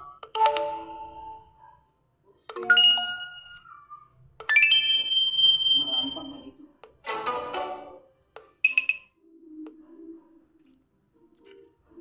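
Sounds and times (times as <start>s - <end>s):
chime ringtone from phone speaker: 4.5s - 6.3s.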